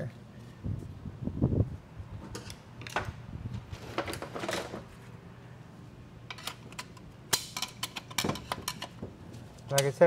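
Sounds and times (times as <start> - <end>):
metal parts scraping and clinking: 6.3 - 9.0.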